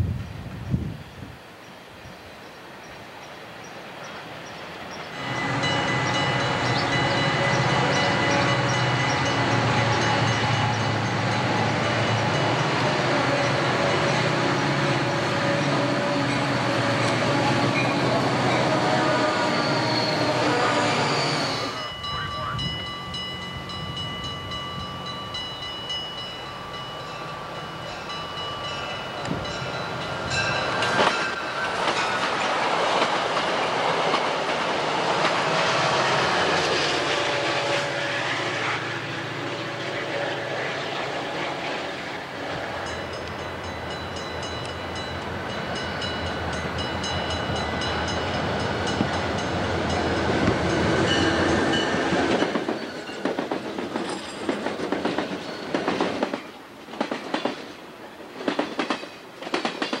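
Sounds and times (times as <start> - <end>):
train wheels clickety-clack: 29.2 - 37.2, 47.9 - 60.0.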